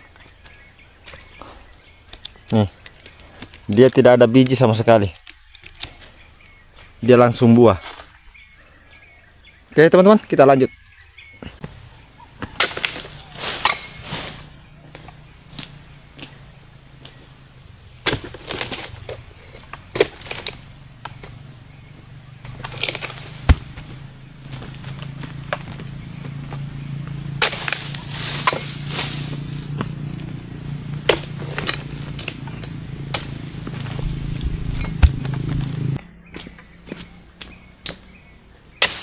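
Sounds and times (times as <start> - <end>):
insects whining: 0.0 - 39.0
chisel chopping palm fronds: 12.4 - 16.4, 18.0 - 21.4, 22.4 - 30.3, 31.0 - 38.1, 38.8 - 39.0
low steady hum: 13.0 - 36.1.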